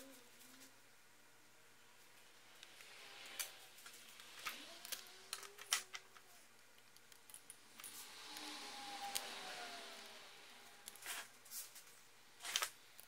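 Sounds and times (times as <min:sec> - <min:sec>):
small parts clicking and tapping: 0:02.5 - 0:09.4, 0:10.8 - 0:13.0.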